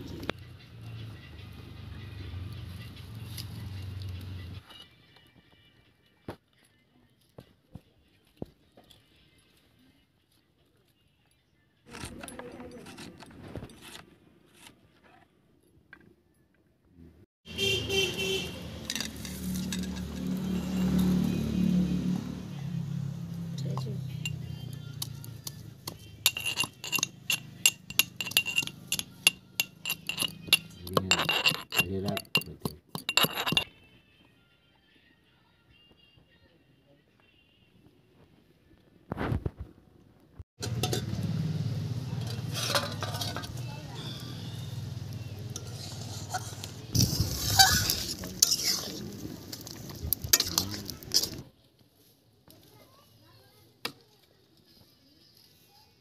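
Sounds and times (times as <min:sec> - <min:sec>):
spoon scraping pan: 0:25.9 - 0:33.7, 0:42.3 - 0:43.6, 0:45.5 - 0:51.4
dal simmering: 0:44.1 - 0:51.5.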